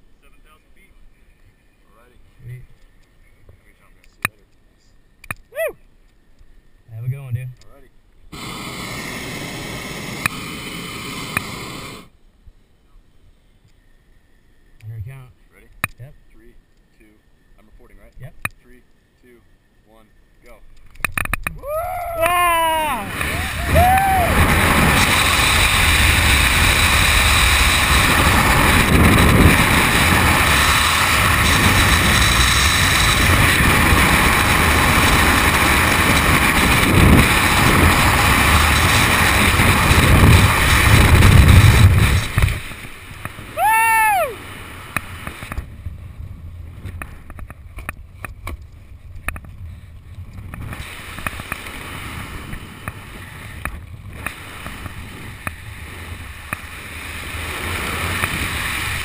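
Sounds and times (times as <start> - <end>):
high whoop: 5.5 - 5.8, 21.6 - 24.5, 43.5 - 44.4
fluttering canopy wind: 20.8 - 43.6, 44.4 - 59.0
wind rushing over microphone: 21.1 - 59.0.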